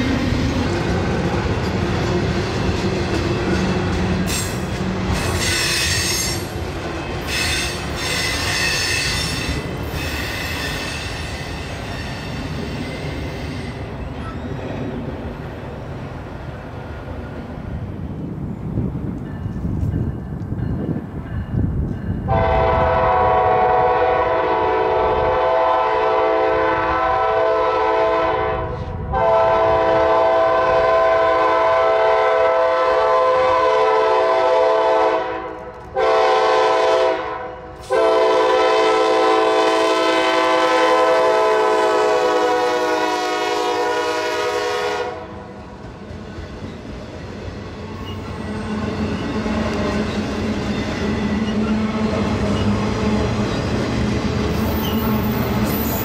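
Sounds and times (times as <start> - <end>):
train cars rumbling past: 0.0 - 56.0
locomotive air horn blasts: 22.3 - 45.5.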